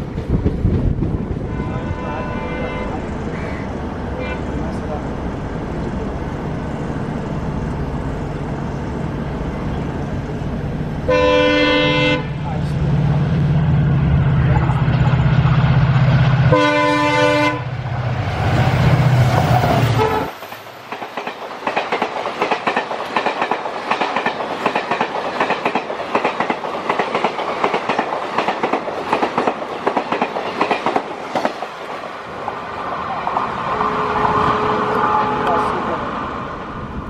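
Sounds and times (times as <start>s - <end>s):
train wheels clacking over rail joints: 0.0s - 1.4s, 19.3s - 31.8s
diesel locomotive engine running: 0.0s - 31.4s
train horn blast: 1.4s - 3.0s, 4.2s - 4.6s, 11.1s - 12.4s, 16.5s - 17.8s, 19.9s - 20.4s, 33.6s - 36.0s.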